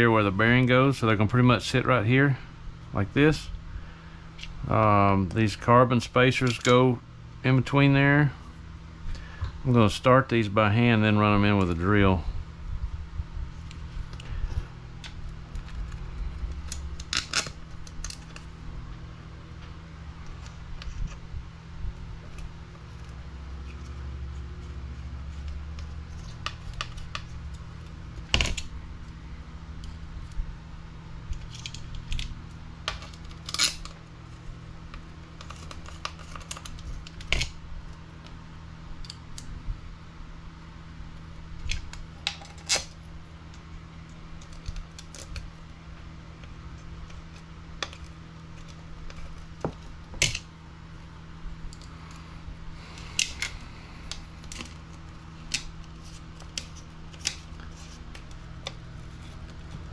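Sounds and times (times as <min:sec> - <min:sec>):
steady low hum: 0:00.0 - 0:59.9
small parts clicking and tapping: 0:31.3 - 0:34.0.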